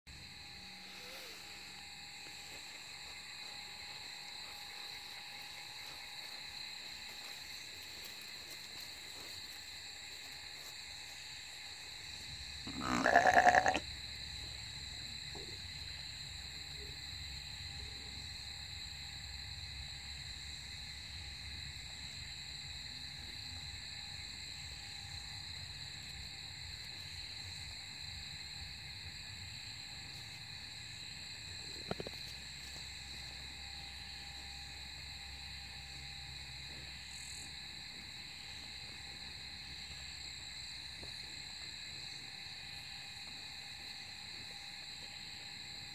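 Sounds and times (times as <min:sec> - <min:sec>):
night insects chirring: 0:00.1 - 0:45.9
sheep bleating: 0:12.7 - 0:13.8.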